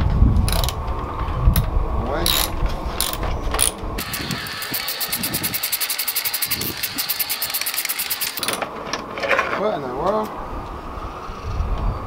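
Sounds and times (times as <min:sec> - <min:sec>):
ratchet wrench clicking: 0:00.5 - 0:00.8, 0:02.3 - 0:08.6.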